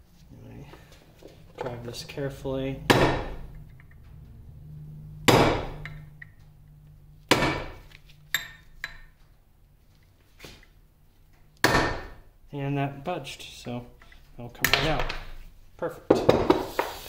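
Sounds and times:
hammer striking metal punch: 2.9 - 3.5, 5.2 - 6.1, 7.3 - 9.1, 11.6 - 12.2.

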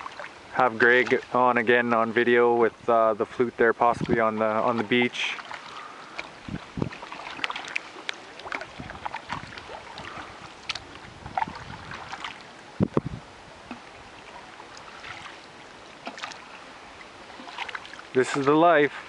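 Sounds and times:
paddles splashing in water: 0.0 - 19.0.

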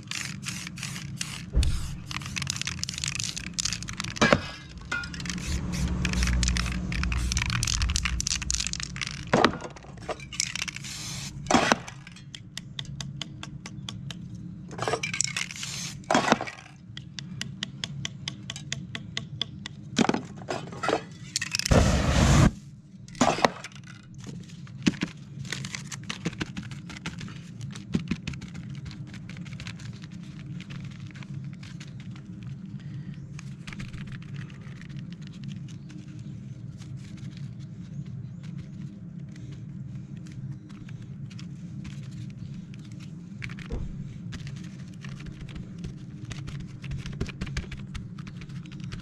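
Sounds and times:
spray paint can hissing: 0.0 - 4.2, 4.9 - 9.4, 10.3 - 11.6, 15.4 - 16.1, 21.7 - 22.6.

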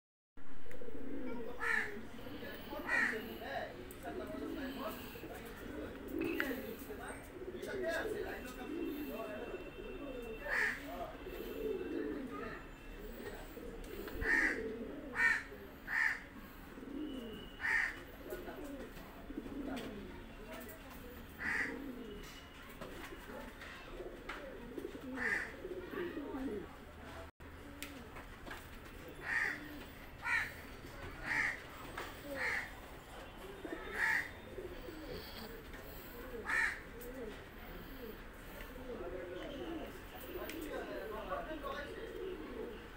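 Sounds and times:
pigeons cooing: 0.5 - 26.8, 27.5 - 42.9
crow cawing: 1.6 - 2.0, 2.8 - 3.3, 10.5 - 10.9, 14.1 - 16.4, 17.4 - 18.0, 21.4 - 21.8, 25.2 - 25.9, 29.2 - 35.5, 36.2 - 36.9.

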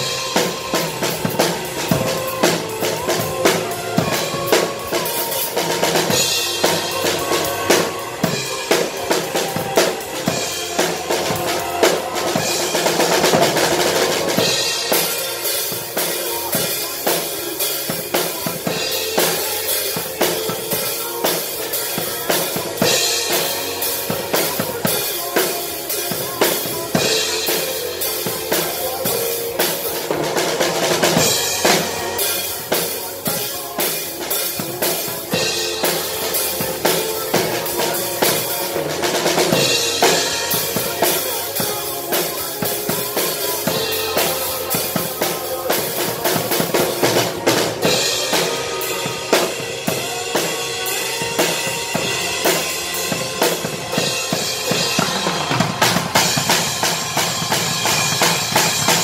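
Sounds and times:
drum kit beat: 0.0 - 59.0.

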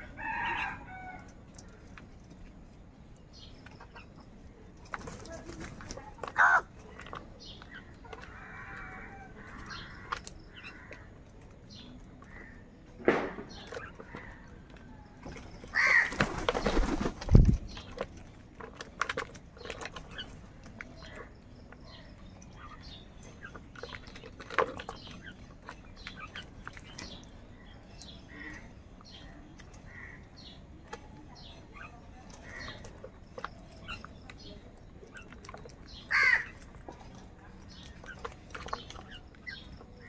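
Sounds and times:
crows cawing: 15.7 - 16.2, 29.9 - 30.3, 36.1 - 36.6
beaks tapping plastic bowl: 17.6 - 40.0.

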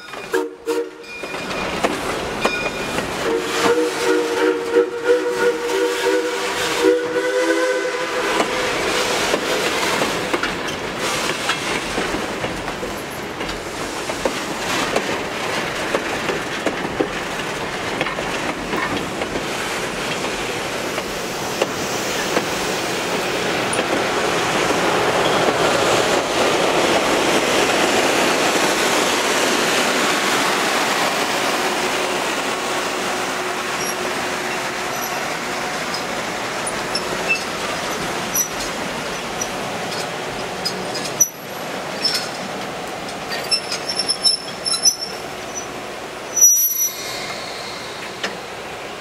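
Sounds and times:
train wheels rumbling on rails: 0.0 - 49.0
high-pitched wheel squeals: 46.3 - 47.1.

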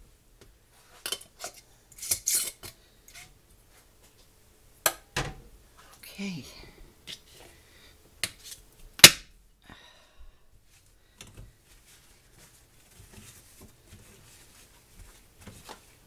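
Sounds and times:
paper towel rustling: 11.5 - 16.0.

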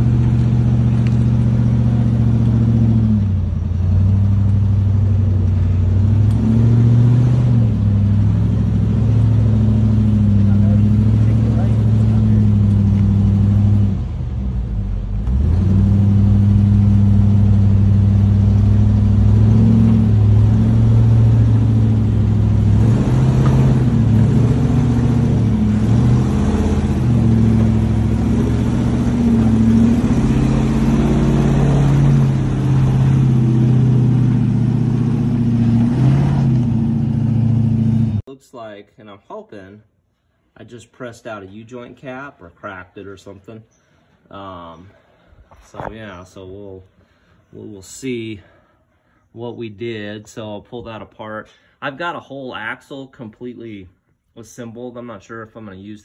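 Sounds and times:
truck engine revving under load: 0.0 - 38.3.

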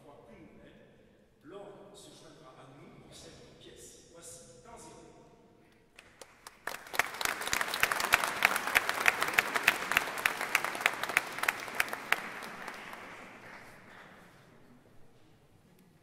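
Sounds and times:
audience applauding: 6.0 - 14.5.

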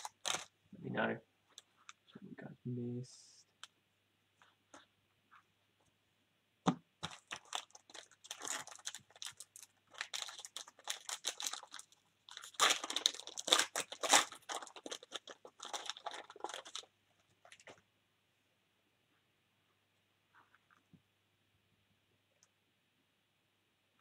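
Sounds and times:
crinkling and crackling: 0.0 - 2.3, 7.0 - 17.9.

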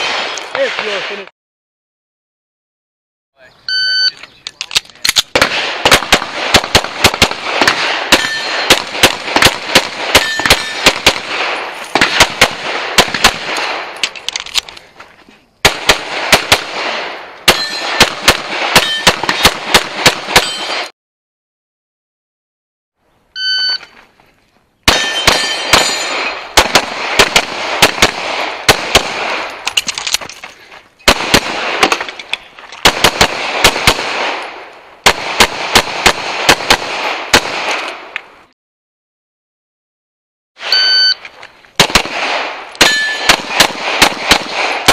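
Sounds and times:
rapid pistol shots: 0.0 - 1.2, 5.2 - 14.0, 15.6 - 20.9, 24.9 - 29.7, 31.1 - 32.1, 32.8 - 38.1, 41.8 - 44.9
short electronic beep: 3.7 - 4.2, 23.4 - 23.9, 40.7 - 41.2
pings from steel targets: 8.1 - 8.8, 10.1 - 10.9, 17.5 - 18.1, 18.8 - 19.6, 20.3 - 20.9, 23.4 - 24.0, 24.9 - 26.5, 40.6 - 41.2, 42.8 - 43.4.

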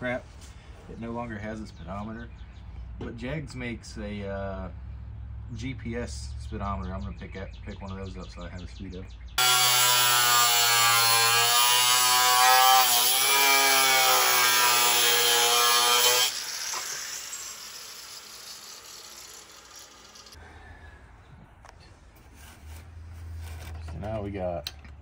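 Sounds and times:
angle grinder cutting metal: 9.4 - 20.4.

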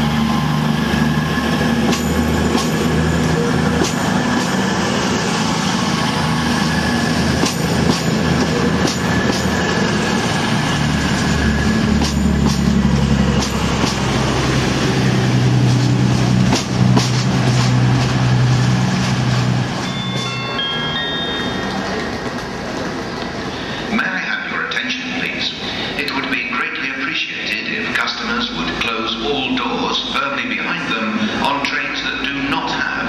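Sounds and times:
approaching train engine: 0.0 - 33.0
diesel train engines droning: 0.0 - 33.0
wheels clicking over rail joints: 11.1 - 14.3.

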